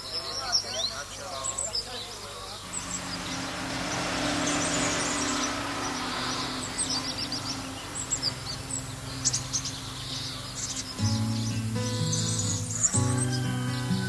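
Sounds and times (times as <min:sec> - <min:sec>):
songbirds chirping: 0:00.0 - 0:14.0
broad rushing noise: 0:02.6 - 0:11.0
low engine hum: 0:02.6 - 0:14.0.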